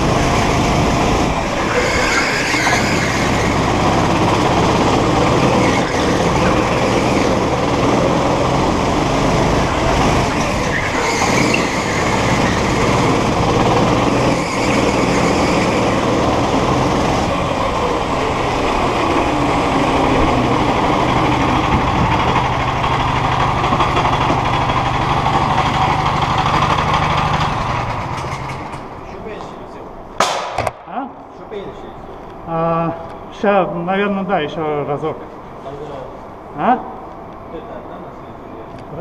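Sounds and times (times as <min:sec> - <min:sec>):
go-kart engine running: 0:00.0 - 0:29.0.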